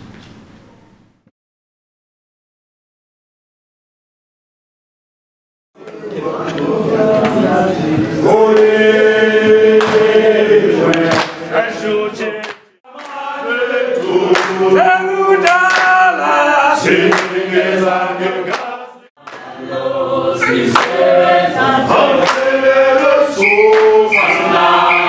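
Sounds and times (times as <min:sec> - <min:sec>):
group singing together: 0:05.8 - 0:25.0
hand claps: 0:09.8 - 0:10.1, 0:10.9 - 0:11.4, 0:12.4 - 0:13.3, 0:14.3 - 0:14.6, 0:15.4 - 0:16.0, 0:17.1 - 0:17.4, 0:18.5 - 0:19.5, 0:20.5 - 0:21.0, 0:22.2 - 0:22.6, 0:23.6 - 0:24.0.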